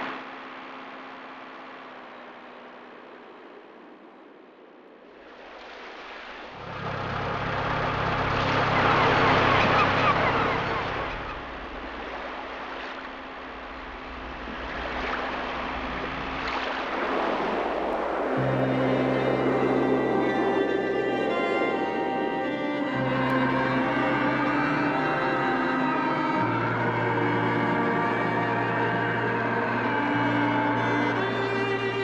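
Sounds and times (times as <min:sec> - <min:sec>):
sea waves: 0:00.0 - 0:32.0
wind: 0:00.0 - 0:32.0
low steady hum: 0:06.5 - 0:32.0.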